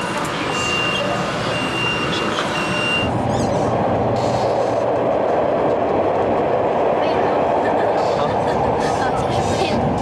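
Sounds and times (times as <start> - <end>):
metro train rumbling on rails: 0.0 - 10.0.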